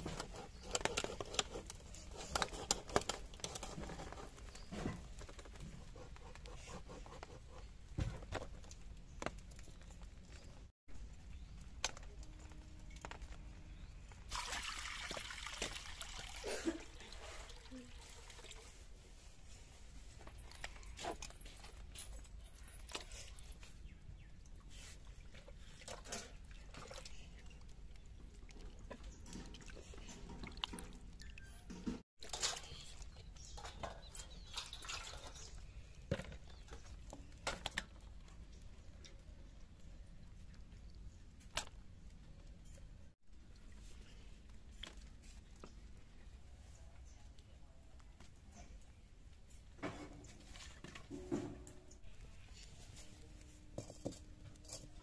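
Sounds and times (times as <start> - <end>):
water splashing in metal pan: 14.3 - 17.2.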